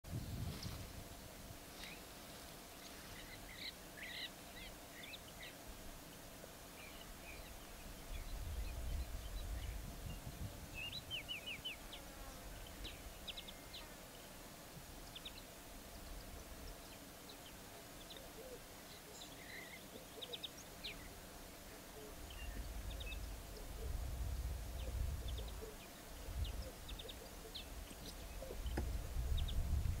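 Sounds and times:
faint steady hum: 0:00.1 - 0:30.0
small birds chirping: 0:02.7 - 0:30.0.

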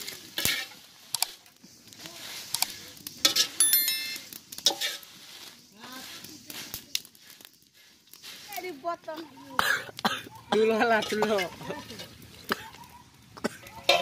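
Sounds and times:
sizzling: 0:00.0 - 0:14.0
metal spoon scraping a wok: 0:00.1 - 0:01.4, 0:03.2 - 0:05.3
high metallic ring: 0:03.6 - 0:04.3.

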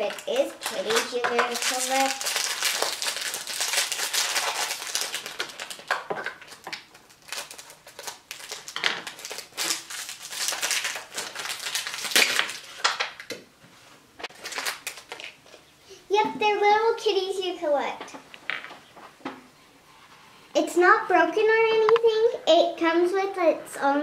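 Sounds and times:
aluminium foil crinkling: 0:00.0 - 0:13.3, 0:14.2 - 0:15.6.

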